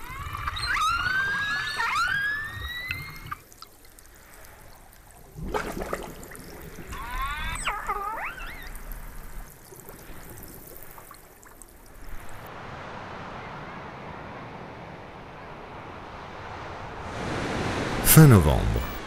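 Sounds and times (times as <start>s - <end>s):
killer whale whistle: 0.0s - 3.4s
killer whale clicks: 0.0s - 12.0s
underwater noise: 0.0s - 19.0s.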